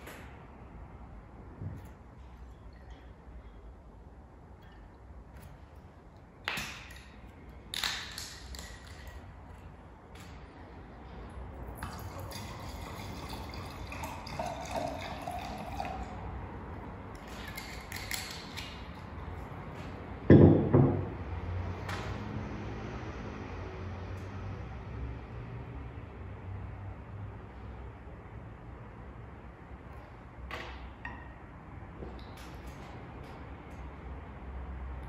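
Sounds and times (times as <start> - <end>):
wine pouring into glass: 11.8 - 16.2.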